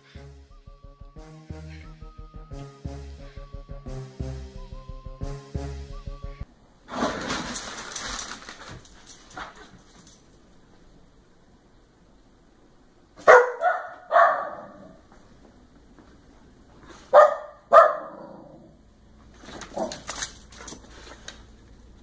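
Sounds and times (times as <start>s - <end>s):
dog barking: 13.2s - 15.0s, 17.1s - 18.6s, 19.7s - 20.0s.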